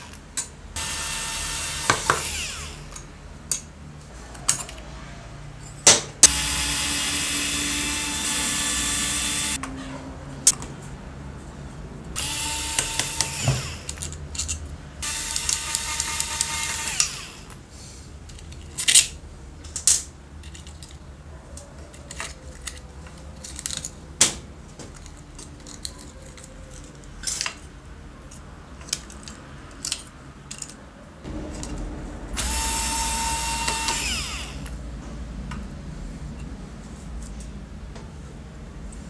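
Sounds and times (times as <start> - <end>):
cordless screwdriver whining: 0.8 - 2.8, 6.3 - 9.6, 12.2 - 14.0, 15.0 - 17.5, 32.4 - 34.7
clicks of parts being handled: 21.6 - 27.7, 28.3 - 30.8.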